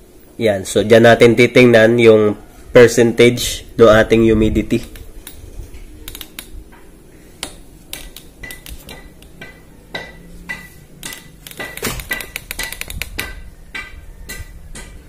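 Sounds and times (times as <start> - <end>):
hands clicking and knocking on metal: 7.4 - 15.0.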